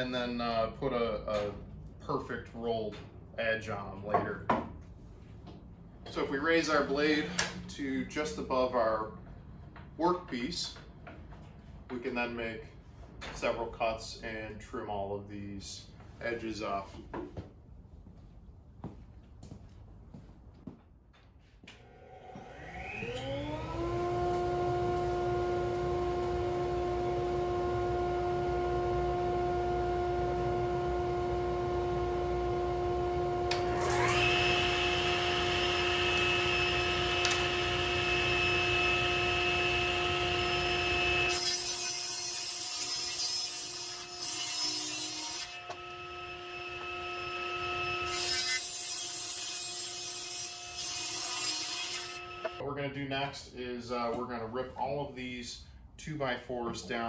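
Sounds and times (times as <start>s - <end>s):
table saw motor whining: 21.8s - 52.6s
saw blade cutting wood: 33.5s - 52.6s.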